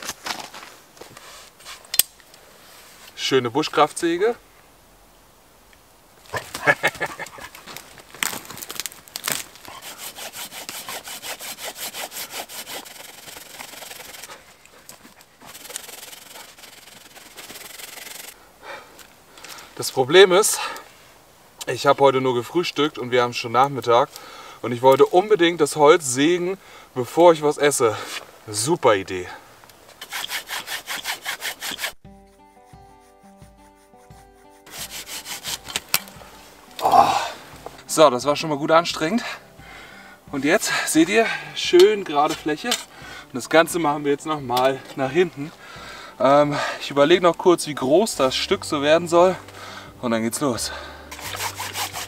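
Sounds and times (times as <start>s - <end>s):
hand saw cutting log: 9.2s - 18.4s, 30.0s - 36.1s, 51.1s - 52.0s
quiet background music: 32.0s - 52.0s.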